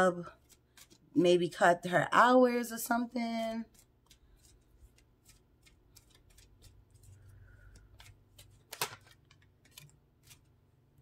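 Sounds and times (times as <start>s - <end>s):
cards clicking while handled: 3.7s - 10.4s.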